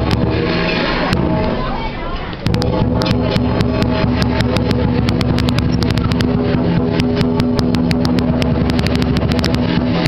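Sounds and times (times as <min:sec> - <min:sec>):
big drum pounding: 0:00.0 - 0:10.0
hand cymbals crashing: 0:02.4 - 0:10.0.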